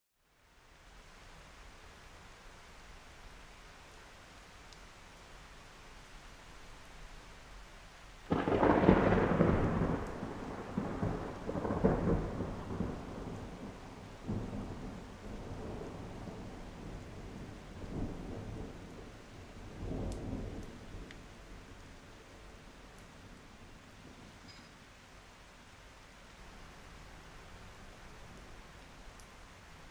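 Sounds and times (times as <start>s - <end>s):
thunder clap and rumble: 8.3s - 21.8s.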